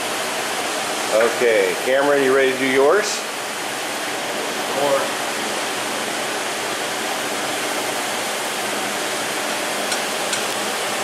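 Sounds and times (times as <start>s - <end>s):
shop background hiss: 0.0s - 3.6s.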